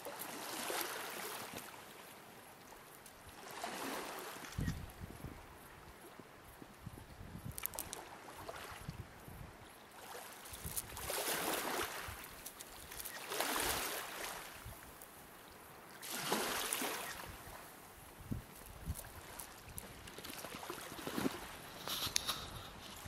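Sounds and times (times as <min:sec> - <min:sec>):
small waves on pebble shore: 0:00.0 - 0:04.7, 0:09.9 - 0:15.0, 0:15.8 - 0:17.9, 0:18.5 - 0:22.2.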